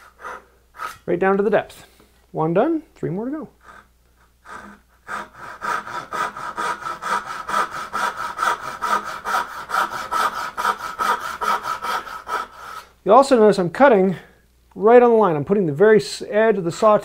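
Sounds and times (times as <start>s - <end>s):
hand saw cutting wood: 0.0s - 1.1s, 3.6s - 12.9s.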